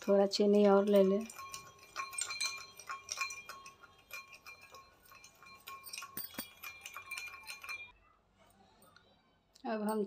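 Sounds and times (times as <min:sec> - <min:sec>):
spoon clinking against glass bowl: 0:00.0 - 0:08.0.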